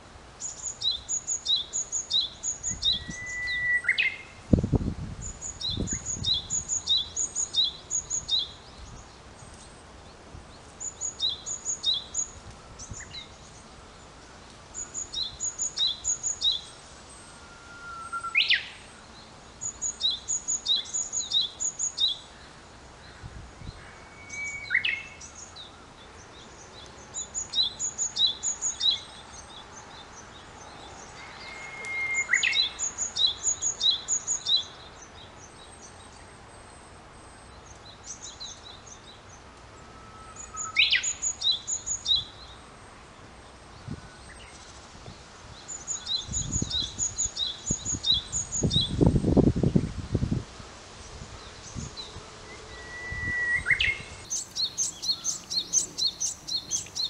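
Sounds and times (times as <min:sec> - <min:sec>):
songbirds chirping: 0:00.0 - 0:57.0
bird whistle sweeping in pitch: 0:02.8 - 0:04.2, 0:17.4 - 0:18.7, 0:23.9 - 0:25.1, 0:31.2 - 0:32.8, 0:40.0 - 0:41.2, 0:52.6 - 0:56.8.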